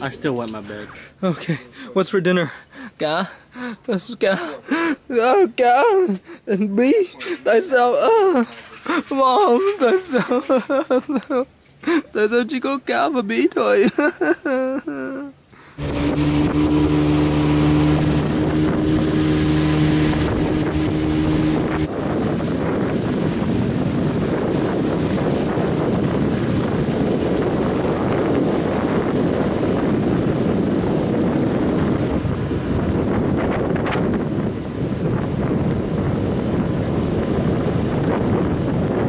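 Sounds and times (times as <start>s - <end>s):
motorboat engine running: 15.8s - 39.0s
water rushing past hull: 15.8s - 39.0s
wind buffeting microphone: 15.8s - 39.0s.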